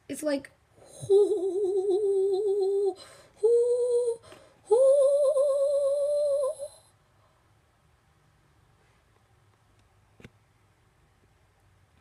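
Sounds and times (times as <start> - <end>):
person humming held notes: 0.8 - 6.8.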